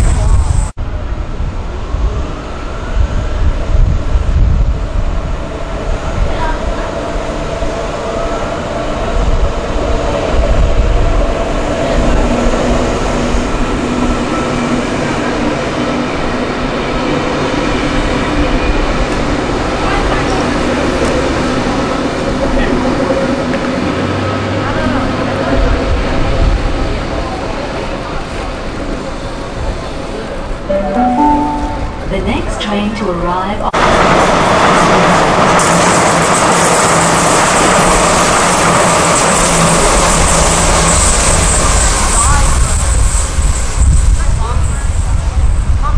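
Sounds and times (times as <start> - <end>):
train wheels rumbling on rails: 33.7 - 45.9.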